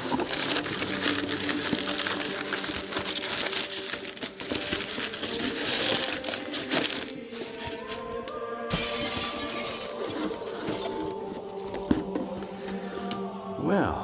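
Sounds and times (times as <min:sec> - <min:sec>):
cardboard box ripping: 0:08.7 - 0:11.5.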